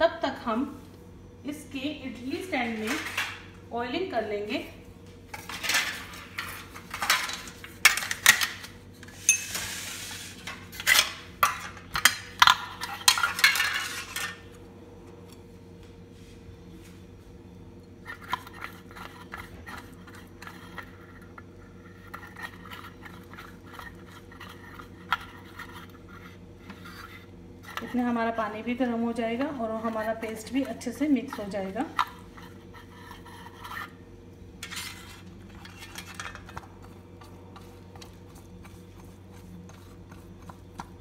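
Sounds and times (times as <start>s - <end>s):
steady low hum: 0.0s - 41.0s
spoon scraping glass bowl: 9.1s - 12.1s, 18.0s - 28.2s, 29.8s - 34.0s, 34.6s - 36.6s.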